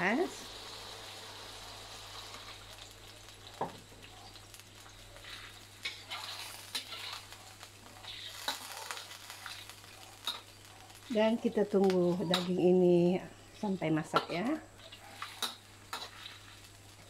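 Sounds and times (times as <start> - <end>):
meat sizzling in a wok: 0.0 - 17.0
metal spatula scraping pan: 5.2 - 7.3, 14.2 - 16.6.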